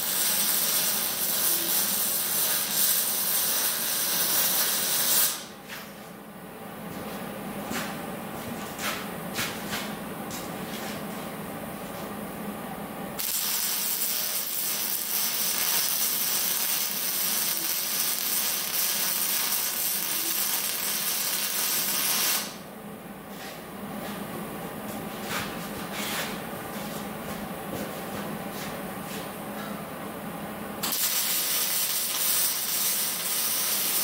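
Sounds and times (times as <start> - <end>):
arc welding hiss: 0.0 - 5.5, 13.2 - 22.6, 30.8 - 34.0
steady hum: 0.0 - 34.0.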